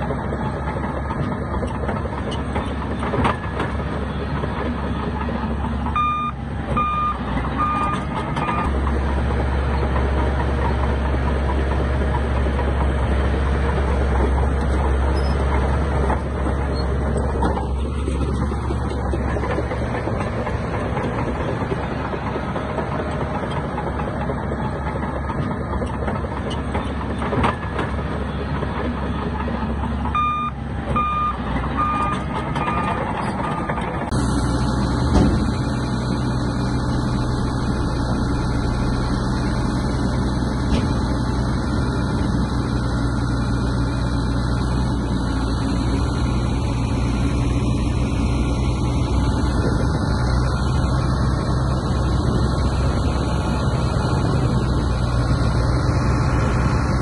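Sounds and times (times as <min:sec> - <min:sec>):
diesel engines of earthmovers: 0:00.0 - 0:57.0
reversing alarm beeping: 0:05.9 - 0:08.7, 0:30.1 - 0:33.8.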